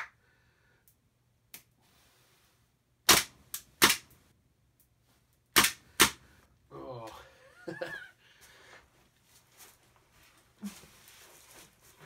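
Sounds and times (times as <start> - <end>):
airsoft pistol shots: 3.1 - 4.1, 5.6 - 6.2.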